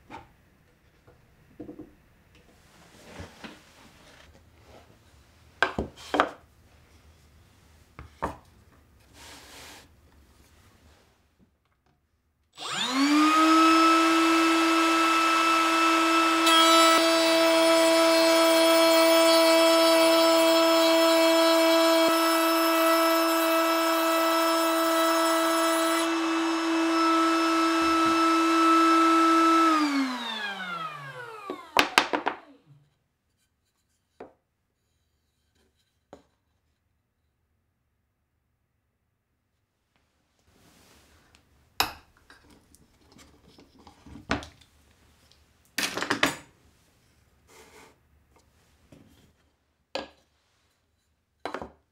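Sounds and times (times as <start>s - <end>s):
router winding down: 12.6s - 20.2s, 25.7s - 32.6s
router whining and cutting wood: 12.6s - 32.8s.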